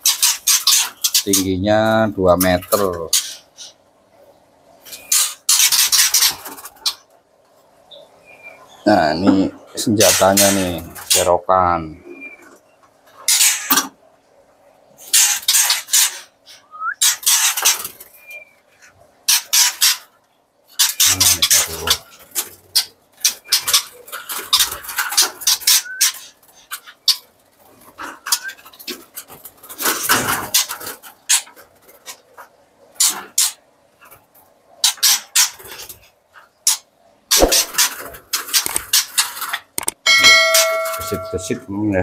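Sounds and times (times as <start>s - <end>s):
rustling and wing flapping: 4.8s - 7.8s, 17.0s - 41.6s
rising bird chirps: 16.4s - 17.2s.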